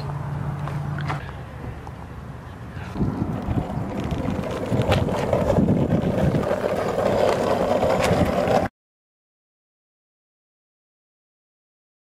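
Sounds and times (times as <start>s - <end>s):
skateboard wheels rolling on asphalt: 0.0s - 8.7s.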